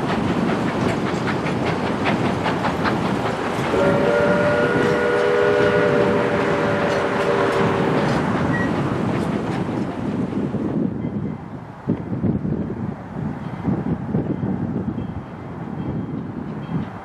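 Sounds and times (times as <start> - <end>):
train wheels clicking over rail joints: 0.0 - 12.4
train rumble: 0.0 - 17.0
steam whistle chord: 3.7 - 8.0.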